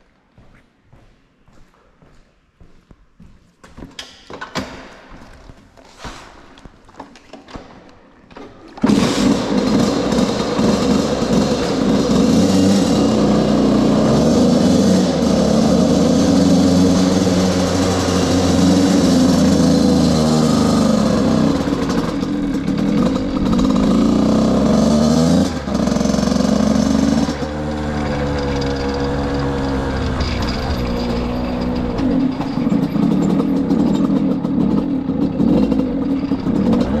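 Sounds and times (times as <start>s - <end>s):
two-stroke motorcycle engine: 8.8s - 37.0s.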